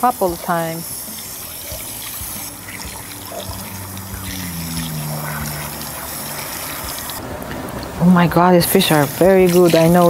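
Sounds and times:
hose water spraying into metal bowl: 0.0s - 7.2s, 8.2s - 10.0s
faint low hum falling in pitch: 1.7s - 7.3s.

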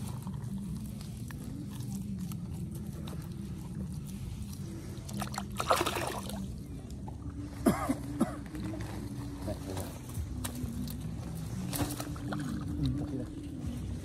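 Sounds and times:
water sloshing and splashing: 4.6s - 7.3s.

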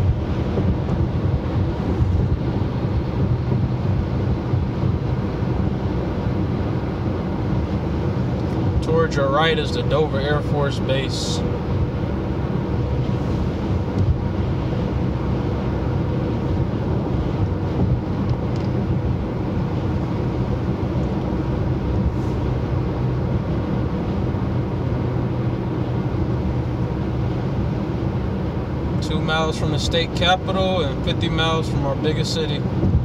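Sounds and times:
car road noise from inside: 0.0s - 33.0s.

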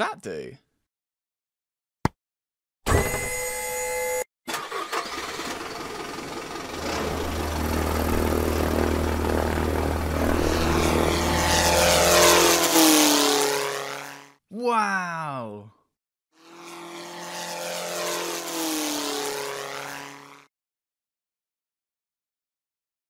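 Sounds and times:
propeller plane engine drone: 4.6s - 14.4s, 16.4s - 20.5s.

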